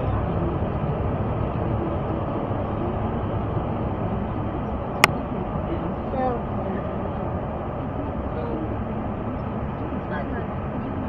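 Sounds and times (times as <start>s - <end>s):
car cabin engine and road noise: 0.0s - 11.0s.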